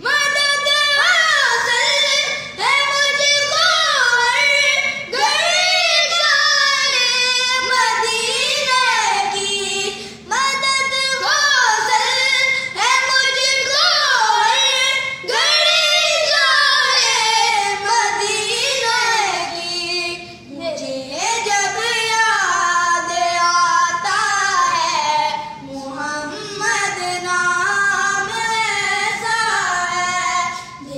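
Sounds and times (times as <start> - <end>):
high voice singing devotional song: 0.0 - 30.9.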